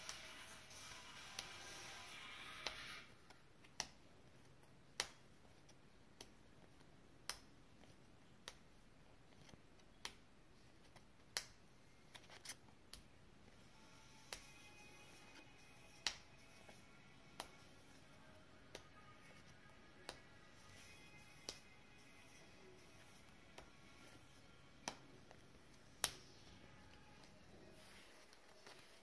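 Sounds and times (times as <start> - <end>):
faint music: 0.0 - 29.0
cards clicking as flicked: 16.0 - 17.6, 21.3 - 21.7, 24.8 - 26.5.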